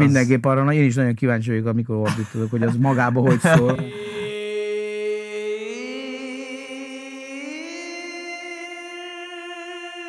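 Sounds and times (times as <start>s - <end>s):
man singing long note: 3.3s - 10.0s.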